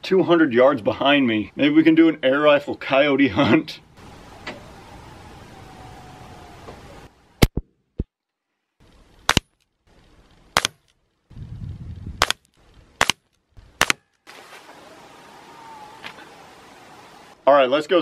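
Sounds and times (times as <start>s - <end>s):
air rifle shots: 10.6s - 10.8s, 12.2s - 12.4s, 13.0s - 13.2s, 13.8s - 14.0s.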